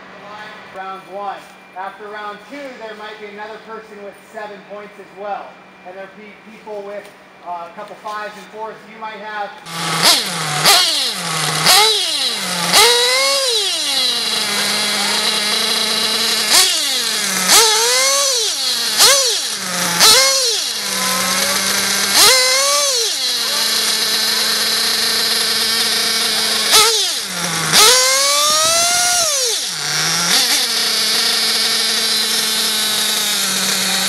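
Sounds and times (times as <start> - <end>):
small engine idling and revving: 9.6 - 34.0.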